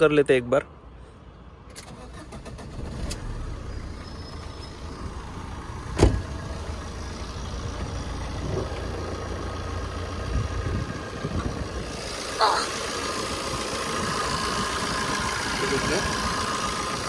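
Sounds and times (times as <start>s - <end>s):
diesel engine starting and idling: 1.6s - 17.0s
car door shutting: 5.8s - 6.4s.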